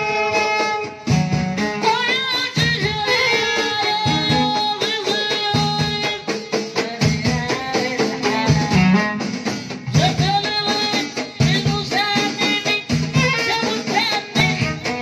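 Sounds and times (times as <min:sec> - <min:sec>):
violin melody: 0:00.0 - 0:01.9
frame drums: 0:00.0 - 0:15.0.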